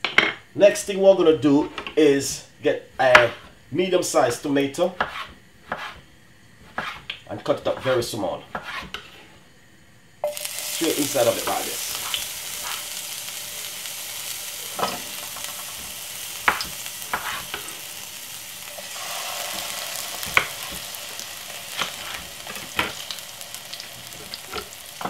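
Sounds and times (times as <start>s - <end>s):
tomato sizzling in oil: 10.2s - 25.0s.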